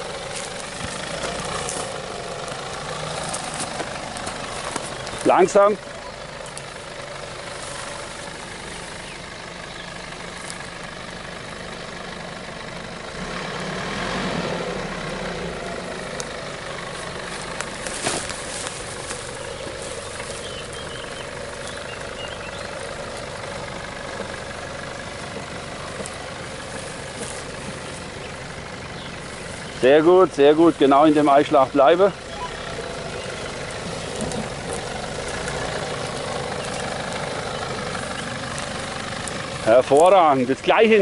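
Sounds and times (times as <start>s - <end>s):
engine running at low revs: 0.0s - 41.0s.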